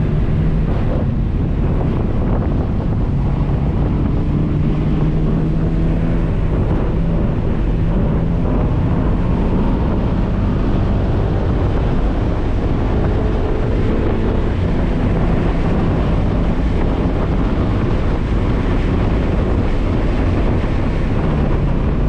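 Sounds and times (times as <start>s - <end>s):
car engine accelerating: 0.0s - 22.0s
wind and road noise: 0.0s - 22.0s.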